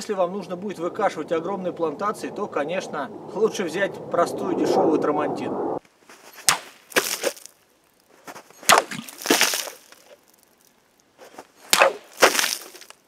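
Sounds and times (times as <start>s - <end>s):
blade chopping plastic bottles: 11.7s - 12.8s.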